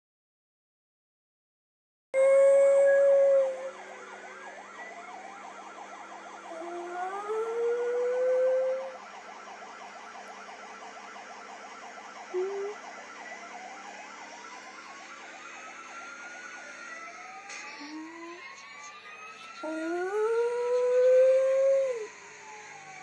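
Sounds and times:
siren wailing from tv: 2.2 - 23.0
dog howling: 6.5 - 8.9, 19.6 - 22.1.

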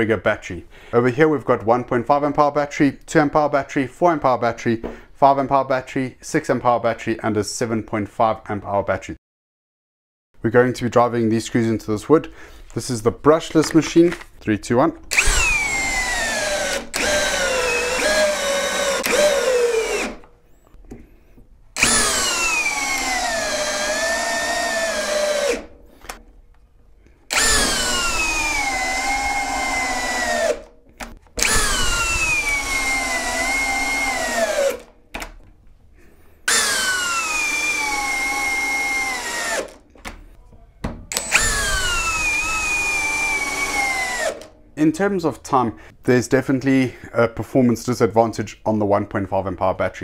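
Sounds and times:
drill driving screws into wood: 15.1 - 20.3, 21.8 - 26.2, 27.3 - 35.3, 36.5 - 40.2, 41.1 - 44.6.

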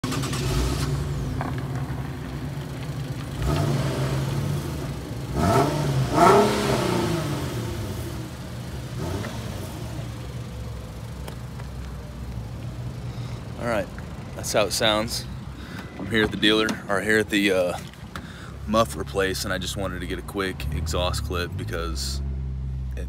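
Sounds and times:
car engine idling and revving: 0.0 - 23.0.

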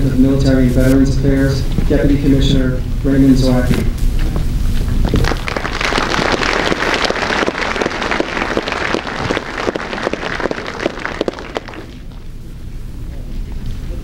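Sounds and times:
audience applauding: 5.1 - 12.3.

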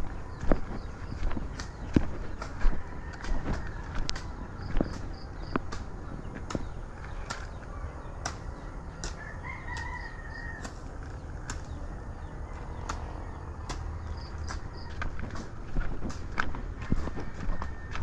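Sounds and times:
footsteps on dirt path: 0.0 - 7.7, 12.5 - 18.0
low wind rumble: 0.0 - 18.0
rooster crowing: 2.6 - 4.2, 8.6 - 10.8, 16.9 - 18.0.

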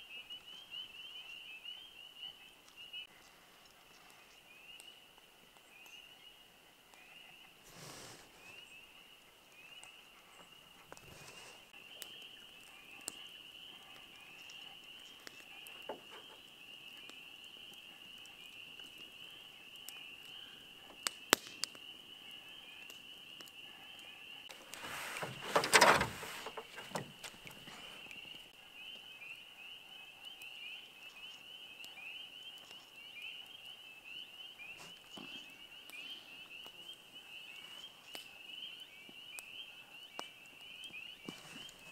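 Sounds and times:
spring peepers chorus: 0.0 - 3.1, 11.7 - 41.9.

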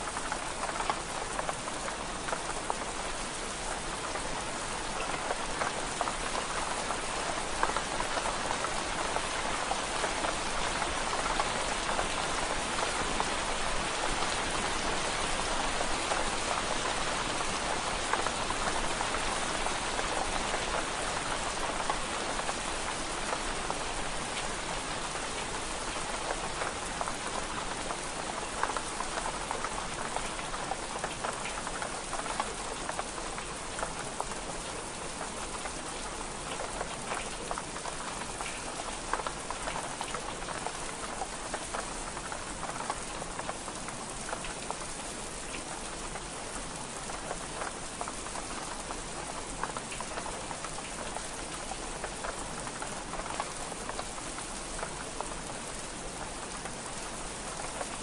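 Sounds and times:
rain on window glass: 0.0 - 58.0.

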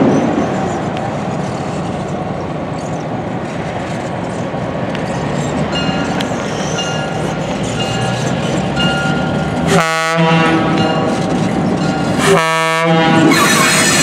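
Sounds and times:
locomotive engine drone: 0.0 - 14.0
train wheel noise: 0.0 - 14.0.

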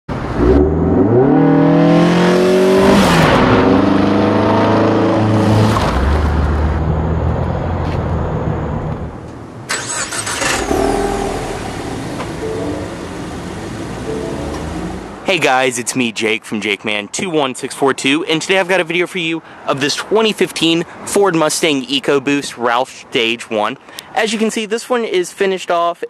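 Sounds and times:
car engine revving: 0.1 - 15.3
sudden sharp noise: 9.7 - 15.2.

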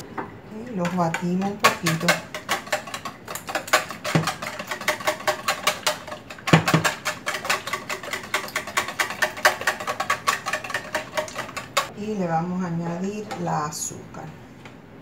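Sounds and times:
whisk beating eggs in a bowl: 0.6 - 11.9.

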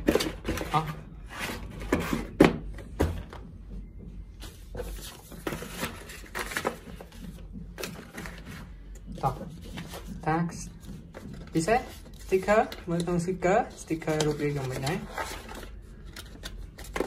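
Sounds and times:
cardboard knocks and thunks: 1.9 - 3.4
cardboard and paper rustling: 4.4 - 17.0.

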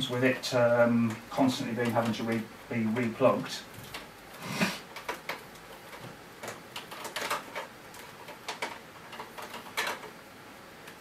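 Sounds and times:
power cable clicking and rustling: 4.8 - 10.2.

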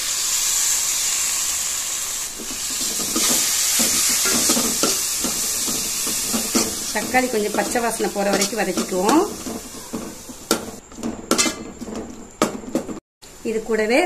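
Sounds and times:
food sizzling in oil: 0.0 - 13.0
steel spoon scraping pot: 2.4 - 12.8.

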